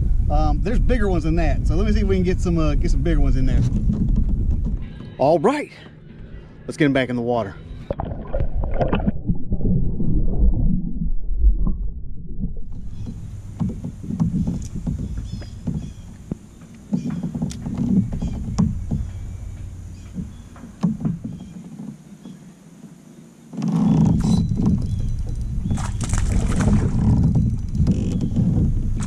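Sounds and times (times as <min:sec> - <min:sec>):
muffled underwater splashing: 0:07.6 - 0:21.9, 0:23.9 - 0:29.0
water lapping at hull: 0:23.5 - 0:29.0.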